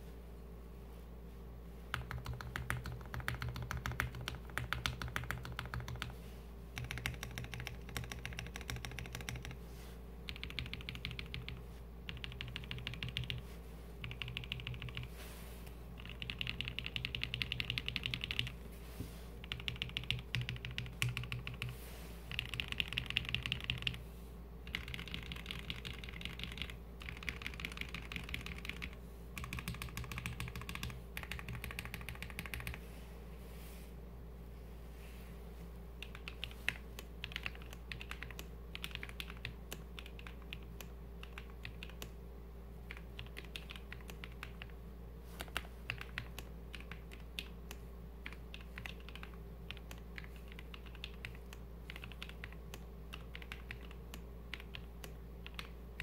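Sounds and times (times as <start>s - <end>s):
mechanical keyboard keystrokes clacking: 6.8s - 9.5s, 24.7s - 32.8s, 36.0s - 40.6s.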